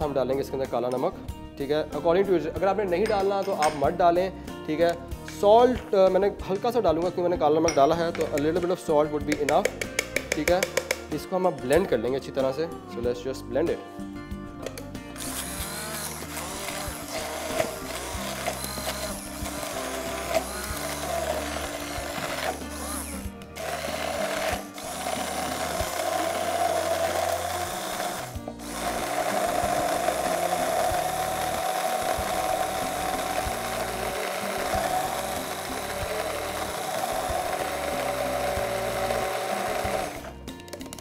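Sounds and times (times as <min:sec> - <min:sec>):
hand blender motor running: 0:15.2 - 0:40.4.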